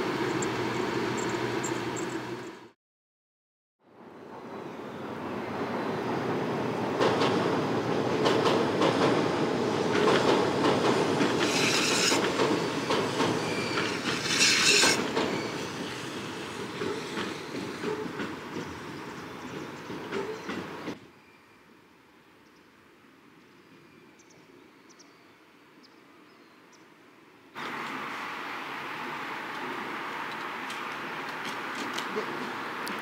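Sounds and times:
train wheels clattering over rail joints: 0:08.1 - 0:09.2, 0:09.9 - 0:21.0
high wheel squeals: 0:11.4 - 0:18.0.

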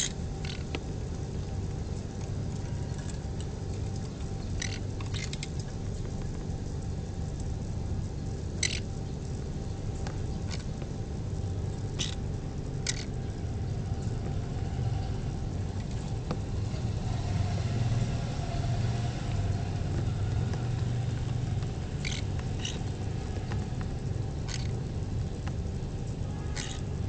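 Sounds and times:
electric fan humming: 0:00.0 - 0:27.0
parrot chicks chirping: 0:04.4 - 0:05.5, 0:08.6 - 0:08.8, 0:12.0 - 0:12.2, 0:21.2 - 0:23.8, 0:24.4 - 0:24.8, 0:26.5 - 0:26.8.

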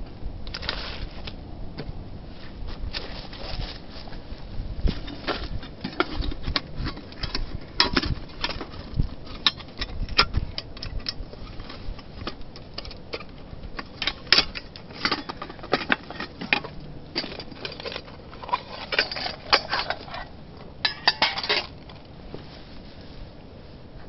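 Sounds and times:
metal cookware clinking: 0:17.2 - 0:21.7.

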